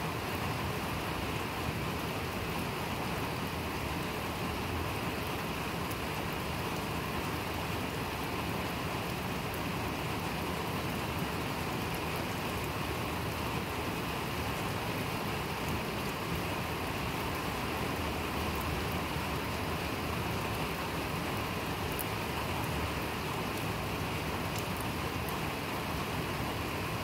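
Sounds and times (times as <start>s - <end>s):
rain falling on paving: 0.0s - 27.0s
raindrop ticks: 24.5s - 25.4s.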